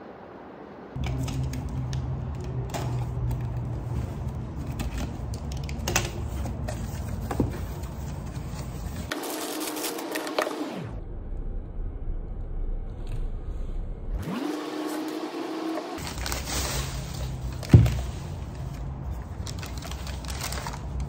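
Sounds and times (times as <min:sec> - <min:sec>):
steady low hum: 0:00.0 - 0:14.3.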